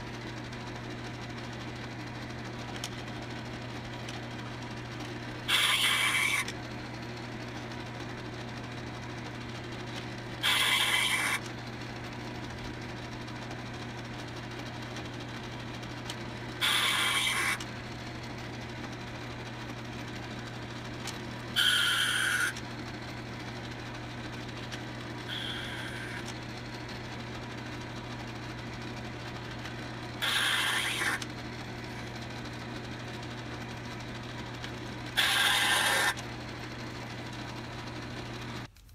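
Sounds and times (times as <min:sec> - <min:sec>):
lathe running hum: 0:00.0 - 0:38.7
high-pitched metal cutting noise: 0:05.5 - 0:06.5, 0:10.4 - 0:11.5, 0:16.6 - 0:17.7, 0:21.6 - 0:22.6, 0:25.3 - 0:26.3, 0:30.2 - 0:31.2, 0:35.1 - 0:36.2.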